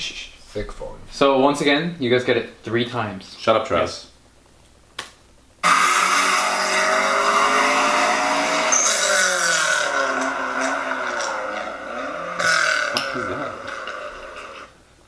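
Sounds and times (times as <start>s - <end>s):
car engine revving hard: 5.6s - 14.6s.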